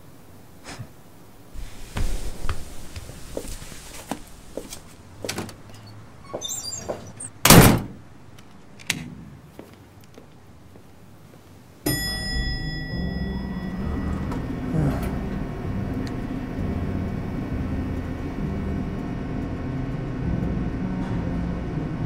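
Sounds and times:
elevator hum: 1.4s - 7.5s, 10.5s - 22.0s
footsteps: 1.6s - 7.3s, 9.5s - 11.6s
door slamming shut: 6.4s - 8.0s
metallic jingle: 11.9s - 14.4s.

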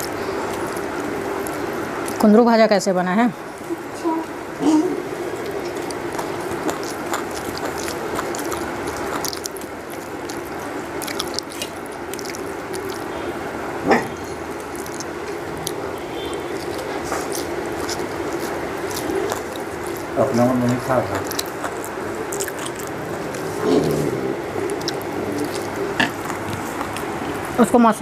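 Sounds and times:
close-up chewing and mouth clicks: 0.0s - 2.4s, 5.2s - 13.6s, 14.2s - 27.6s
steady low hum: 0.0s - 28.0s
fingers working food on steel plate: 5.3s - 13.1s, 14.3s - 27.6s.

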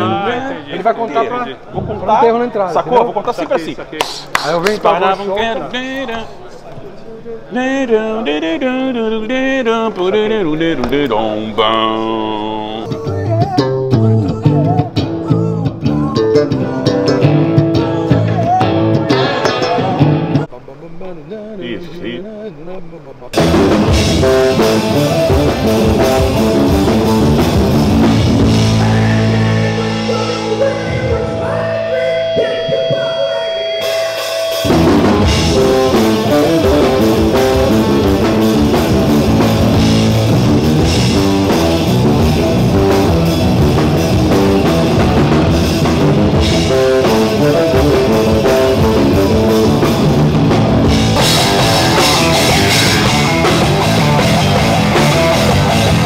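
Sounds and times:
rock band playing: 13.0s - 20.5s, 23.4s - 56.0s.

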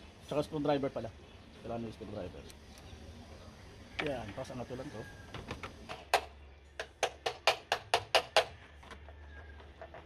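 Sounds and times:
screwdriver knocking on metal hub: 5.4s - 8.6s.

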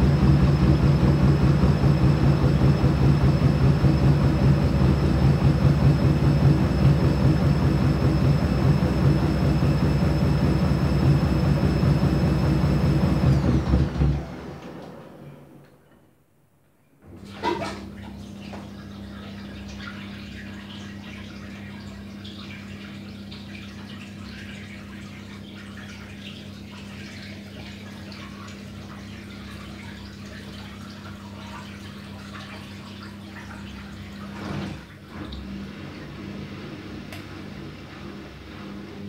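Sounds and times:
washing machine electrical hum: 0.0s - 39.0s
water trickling: 17.6s - 34.3s.

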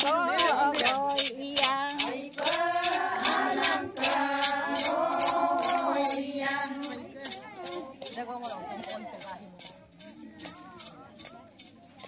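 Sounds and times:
women singing in unison: 0.0s - 7.3s.

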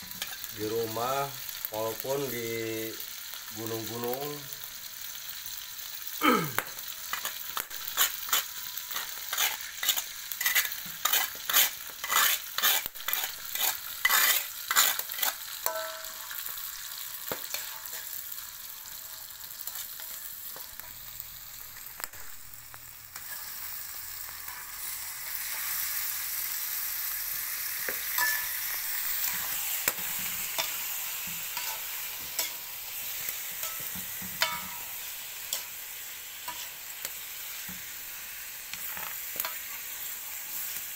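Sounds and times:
paste sizzling in hot oil: 0.0s - 40.9s
metal spoon scraping stone mortar: 7.1s - 16.4s, 31.5s - 32.6s.

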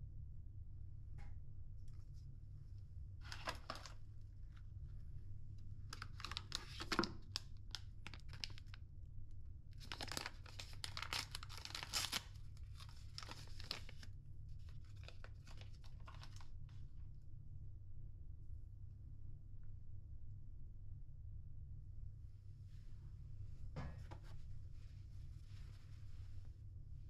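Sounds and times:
paper wrapper tearing and crinkling: 3.2s - 4.0s, 5.9s - 8.8s, 9.8s - 14.1s, 14.9s - 16.5s
steady low hum: 12.3s - 27.0s.

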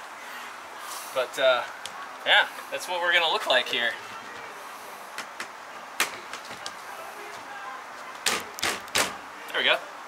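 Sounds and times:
low background noise: 0.0s - 10.0s
window frame clicks: 8.2s - 9.2s.

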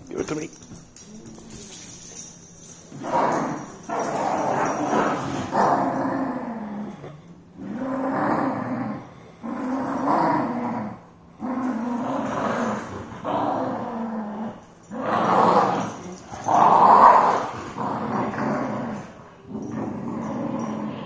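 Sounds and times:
dogs growling: 0.2s - 21.0s.

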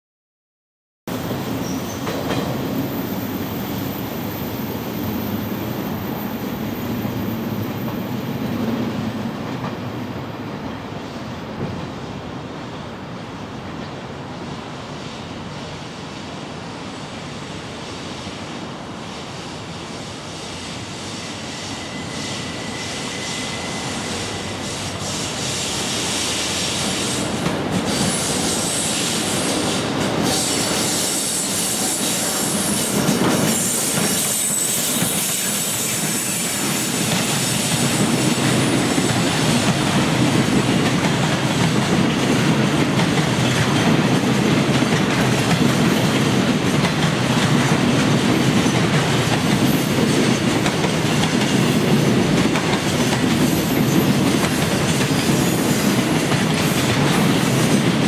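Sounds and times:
freight train passing: 1.1s - 58.0s
wheels squealing on track: 30.4s - 38.2s.

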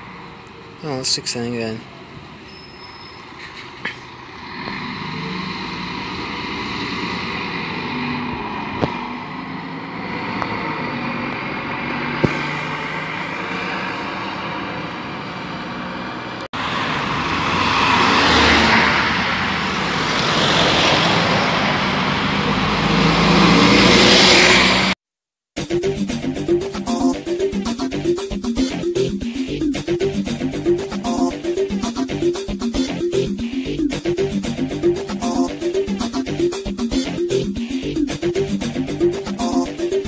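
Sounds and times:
bus engine accelerating: 0.0s - 25.0s, 25.7s - 40.0s
bus passing close by: 0.0s - 25.0s.

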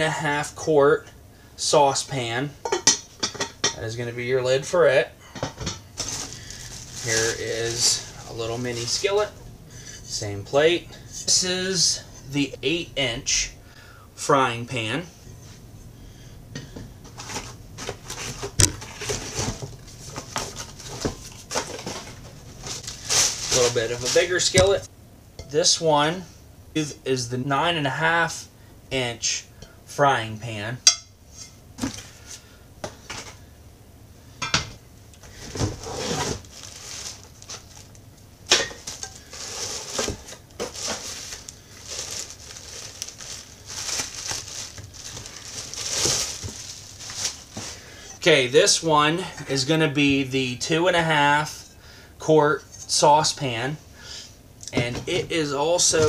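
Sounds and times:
plastic bag crinkling: 6.0s - 9.3s, 19.0s - 24.8s, 35.8s - 38.0s, 38.8s - 48.0s
cardboard and plastic wrap rustling: 6.0s - 9.4s, 17.0s - 24.9s, 35.2s - 38.0s, 38.6s - 48.0s.

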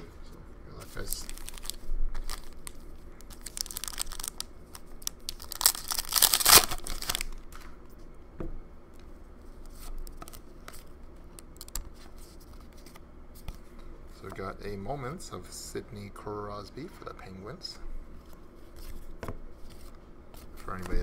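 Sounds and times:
cards rustling: 0.8s - 7.7s, 18.7s - 21.0s
foil pack crinkling: 0.9s - 7.6s
foil pack ripping open: 1.0s - 7.5s.

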